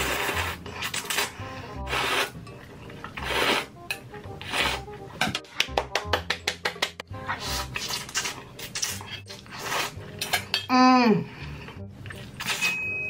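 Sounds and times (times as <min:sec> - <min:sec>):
person slurping noodles: 0:00.0 - 0:02.4, 0:03.0 - 0:04.9, 0:07.3 - 0:10.3
rapid sharp claps: 0:05.5 - 0:07.0.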